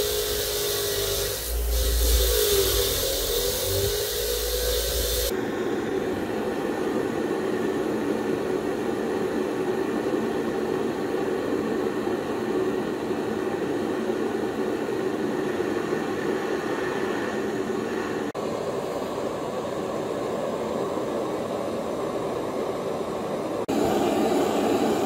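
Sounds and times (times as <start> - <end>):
butane torch flame hissing: 0.0 - 5.9.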